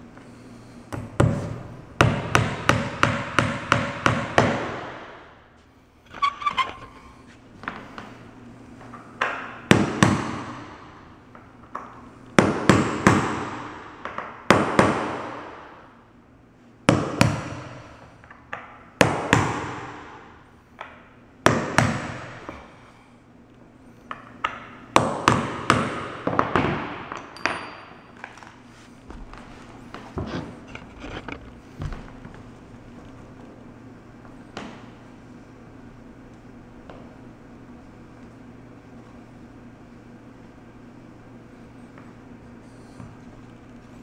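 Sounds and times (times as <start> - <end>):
hammer striking nails into wood: 2.0 - 5.2, 12.4 - 15.6, 20.8 - 22.4, 24.4 - 27.6.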